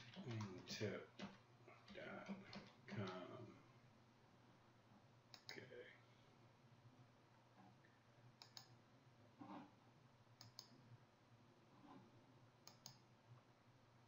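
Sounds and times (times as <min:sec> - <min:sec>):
low steady hum: 0:00.0 - 0:14.0
computer mouse clicks: 0:05.3 - 0:05.6, 0:08.4 - 0:08.8, 0:10.4 - 0:10.8, 0:12.6 - 0:13.1.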